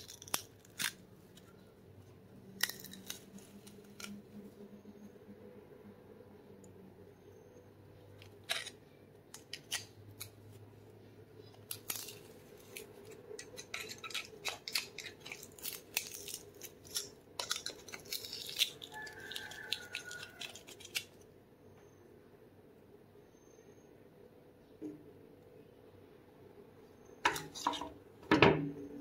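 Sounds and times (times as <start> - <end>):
pliers clicking and scraping metal: 0.0 - 1.5, 2.6 - 4.2, 8.2 - 10.4, 11.6 - 21.2.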